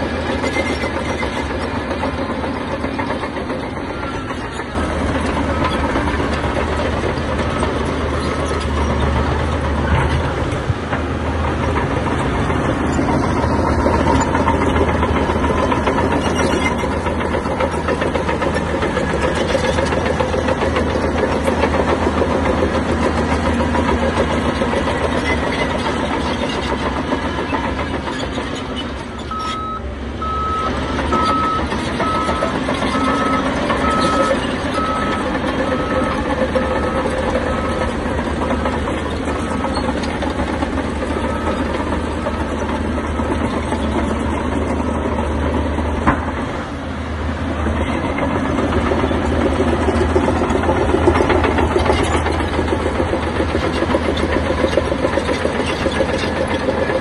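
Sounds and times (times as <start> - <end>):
heavy diesel machinery running: 0.0 - 57.0
reversing alarm beeping: 29.3 - 38.0.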